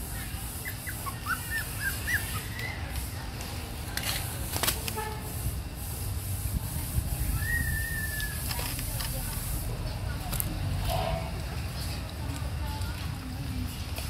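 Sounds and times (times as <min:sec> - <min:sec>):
puppies squeaking: 0:00.1 - 0:03.0
puppy whining: 0:00.6 - 0:02.9.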